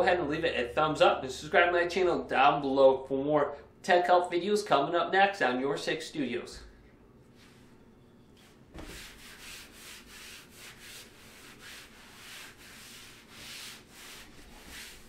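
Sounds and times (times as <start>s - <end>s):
hands rubbing fabric mat: 8.4s - 15.0s.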